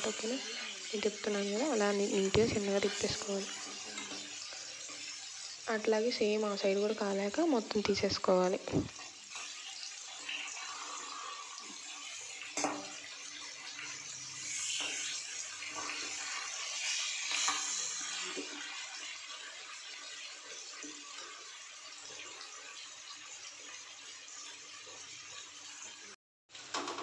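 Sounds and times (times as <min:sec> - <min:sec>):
spatula scraping metal pan: 0:00.0 - 0:05.6, 0:14.1 - 0:18.7
fish sizzling in oil: 0:00.0 - 0:27.0.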